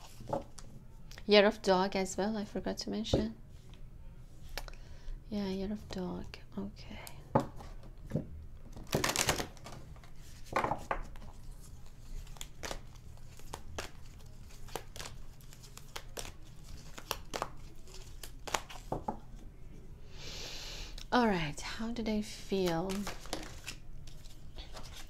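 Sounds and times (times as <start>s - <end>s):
cards being shuffled: 8.7s - 19.2s, 22.5s - 25.0s.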